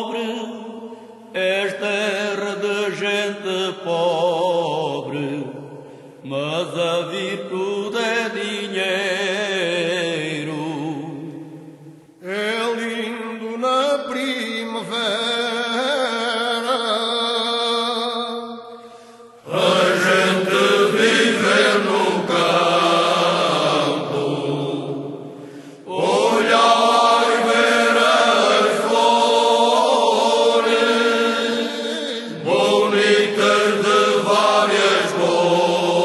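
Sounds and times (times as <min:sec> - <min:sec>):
unaccompanied voices singing: 0:19.4 - 0:36.0.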